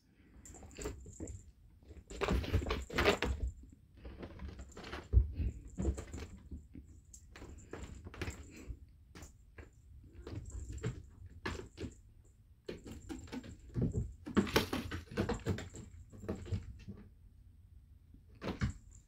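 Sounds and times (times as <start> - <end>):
cats scuffling on carpet: 0.4 - 12.0.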